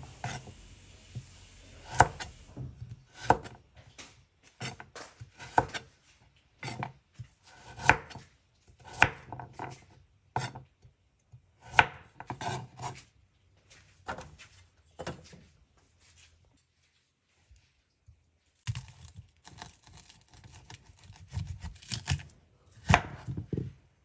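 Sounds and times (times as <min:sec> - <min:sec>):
knife slicing carrot on board: 0:00.2 - 0:00.6, 0:01.2 - 0:03.6, 0:04.4 - 0:06.0, 0:06.6 - 0:10.7, 0:11.6 - 0:13.1, 0:14.0 - 0:14.4, 0:18.7 - 0:23.6.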